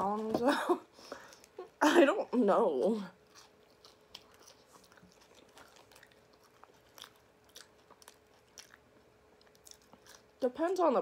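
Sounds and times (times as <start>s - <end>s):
faint steady hum: 0.0s - 11.0s
chewing and crunching food: 2.7s - 11.0s.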